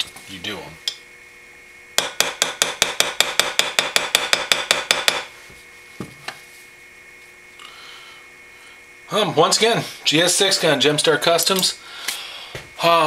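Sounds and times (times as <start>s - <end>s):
small hammer tapping metal: 2.0s - 5.3s.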